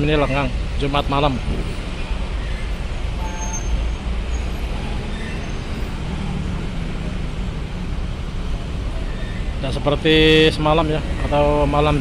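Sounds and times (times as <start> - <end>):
engine rumble: 3.9 - 12.0.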